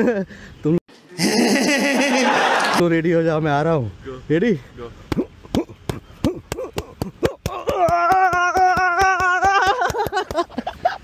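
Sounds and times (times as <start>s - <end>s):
person grunting: 1.1s - 1.7s.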